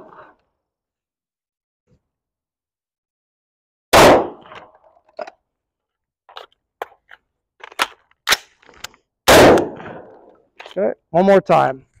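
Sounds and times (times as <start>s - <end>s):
pistol shot echoing: 3.9s - 4.6s, 9.3s - 10.1s.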